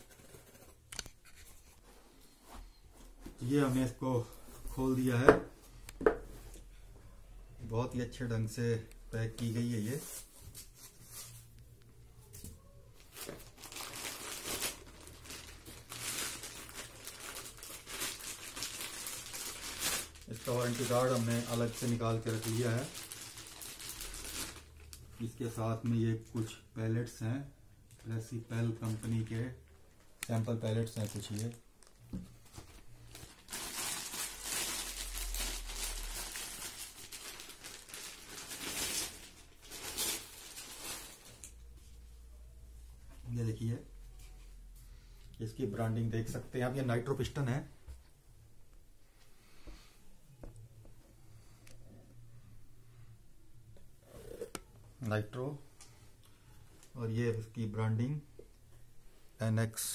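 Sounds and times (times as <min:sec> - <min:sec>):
plastic wrapping crinkling: 0:13.0 - 0:26.5, 0:27.9 - 0:41.7.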